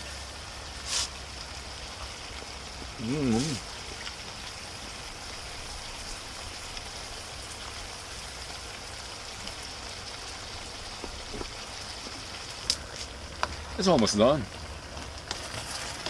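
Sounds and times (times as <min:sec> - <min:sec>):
food sizzling in a wok: 0:00.0 - 0:16.0.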